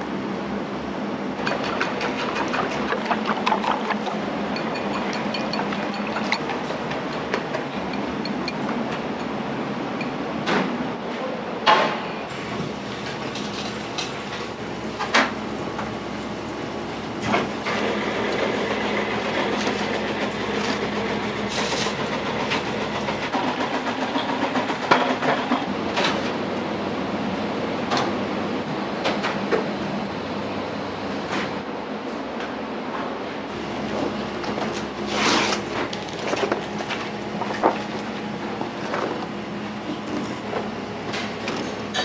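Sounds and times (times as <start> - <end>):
utensils and dishes clinking: 1.4 - 9.4, 13.1 - 14.4, 39.9 - 42.0.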